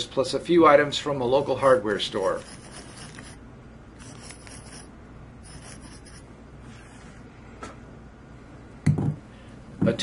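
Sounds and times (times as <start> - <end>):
soldering tip scraping brass wool: 1.6 - 3.4, 4.0 - 6.3.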